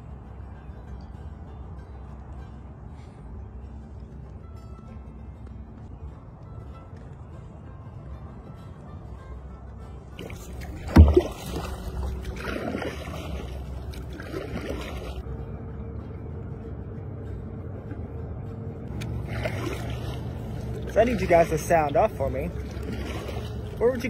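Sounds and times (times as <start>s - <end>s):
low rumble: 0.0s - 24.0s
paddle splashing through water: 10.1s - 15.2s, 18.9s - 24.0s.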